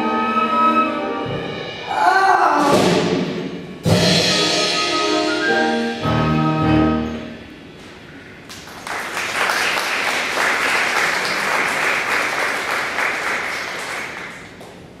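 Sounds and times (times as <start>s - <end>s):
audience applauding: 8.4s - 14.9s.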